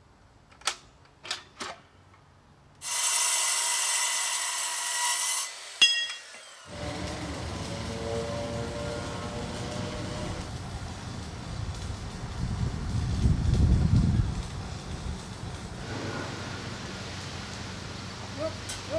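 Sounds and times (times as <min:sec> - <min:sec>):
circular saw cutting steel: 0:02.8 - 0:10.6
steel clanging: 0:05.8 - 0:10.5
steady rushing noise: 0:06.8 - 0:18.4.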